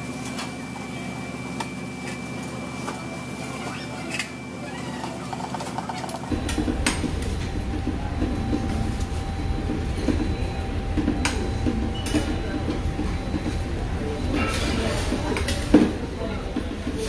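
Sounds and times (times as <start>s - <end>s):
moving vehicle rumble: 6.1s - 16.8s.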